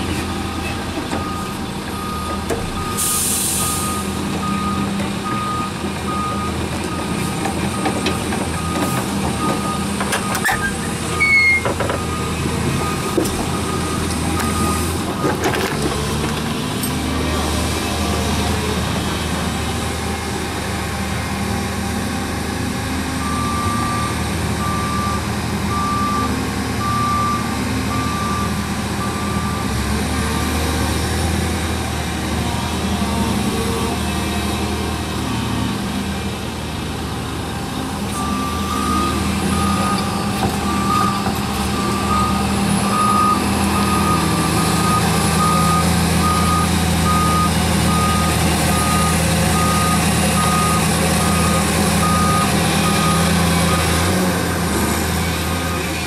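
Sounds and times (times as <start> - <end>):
heavy diesel engines running: 0.0 - 56.0
reversing alarm beeping: 1.2 - 6.6, 7.7 - 15.4, 23.2 - 29.7, 38.2 - 54.0.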